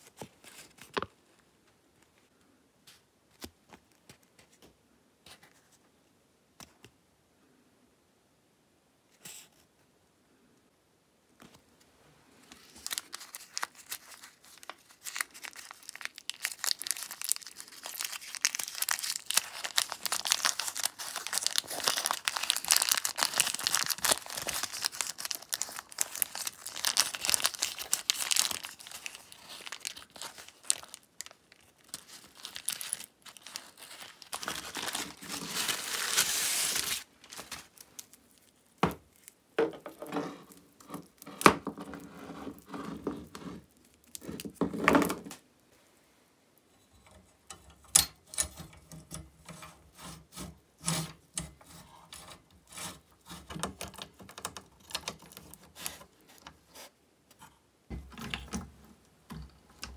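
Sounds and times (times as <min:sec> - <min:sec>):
paper crinkling and tearing: 0:12.6 - 0:39.4, 0:52.2 - 0:56.9.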